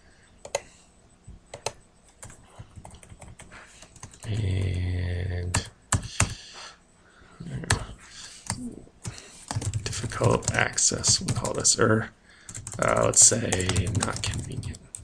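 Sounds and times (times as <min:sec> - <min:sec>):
keyboard typing: 0:00.4 - 0:00.7, 0:01.5 - 0:06.4, 0:08.4 - 0:11.7, 0:12.5 - 0:15.0
man humming hmm: 0:07.4 - 0:09.0.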